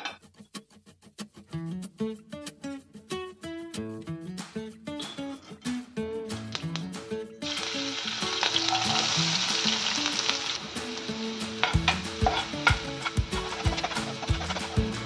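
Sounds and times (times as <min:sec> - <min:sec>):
oil sizzling in frying pan: 0:07.4 - 0:15.0
spatula scraping a pan: 0:08.4 - 0:09.8, 0:11.5 - 0:15.0.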